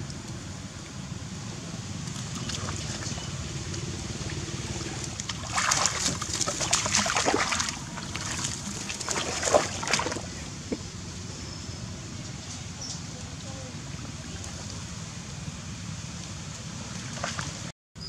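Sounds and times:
rustling through wet grass: 2.0s - 10.8s
splashing in shallow water: 2.0s - 10.8s, 16.6s - 17.7s.

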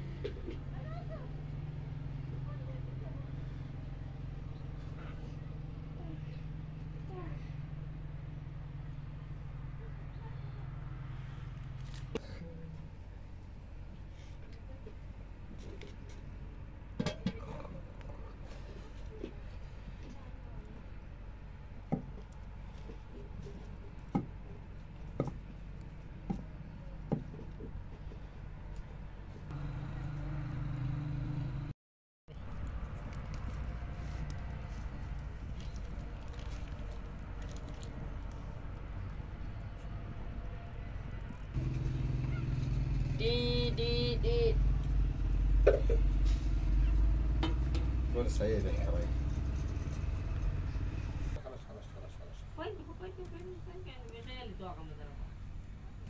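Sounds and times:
vehicle engine idling: 0.0s - 31.7s, 32.3s - 54.2s
louder hum with low tone: 29.3s - 31.7s.

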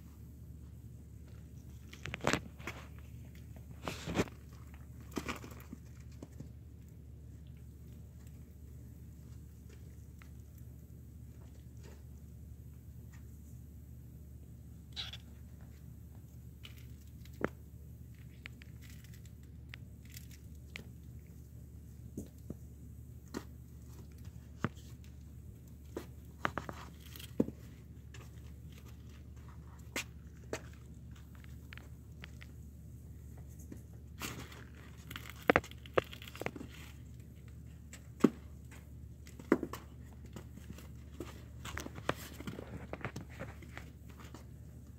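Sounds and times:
steady low hum: 0.0s - 44.9s
kittens scuffling on cardboard: 1.1s - 12.3s, 22.2s - 44.9s.

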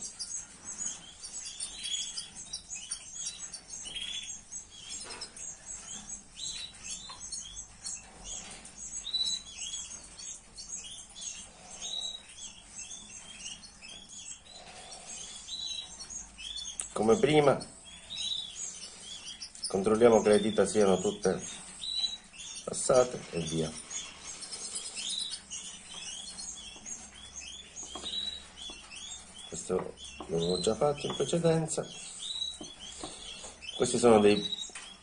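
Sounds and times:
canaries chirping: 0.0s - 35.0s.

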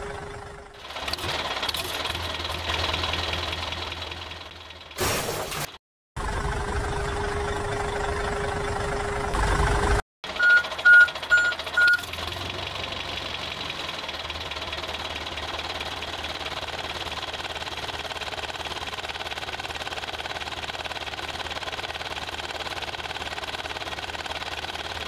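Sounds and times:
tractor engine running: 0.0s - 25.0s
short high beeps: 10.4s - 12.0s.

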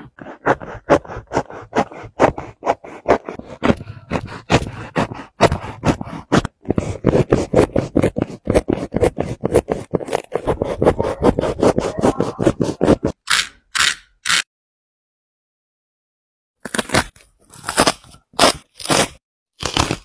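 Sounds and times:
utility knife cutting shoe: 0.0s - 14.5s, 16.6s - 20.0s.

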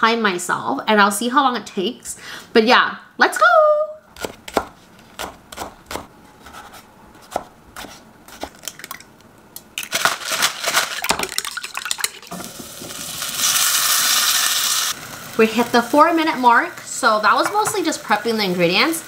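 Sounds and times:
knife chopping on wooden board: 4.2s - 8.5s
utensil beating egg in bowl: 11.0s - 12.4s.

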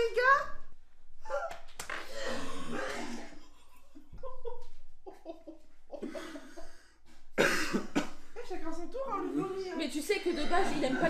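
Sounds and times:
person retching and gagging: 1.3s - 4.0s
laughter: 3.6s - 6.8s.

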